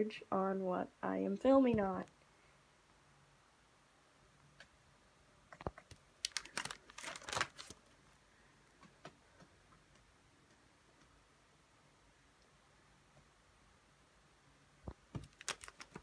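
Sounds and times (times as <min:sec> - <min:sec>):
plastic sleeves crinkling and clicking: 0:05.5 - 0:07.9, 0:14.9 - 0:16.0.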